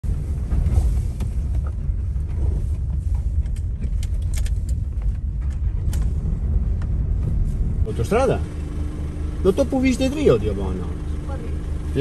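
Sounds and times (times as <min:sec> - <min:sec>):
vehicle engine and road rumble: 0:00.0 - 0:12.0
small clicks and rattles: 0:01.6 - 0:06.2.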